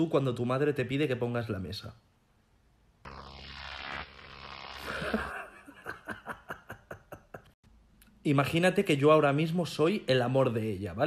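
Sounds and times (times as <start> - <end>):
falling pitch hiss: 3.1 - 5.5.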